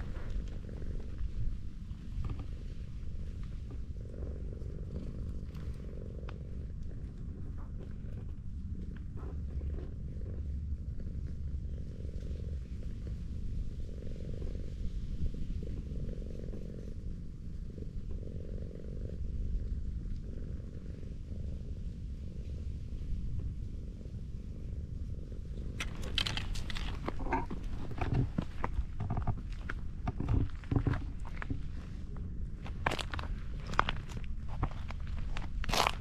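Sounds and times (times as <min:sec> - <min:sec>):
cat purring: 0:00.0 - 0:36.0
cat moving on gravel: 0:25.8 - 0:36.0.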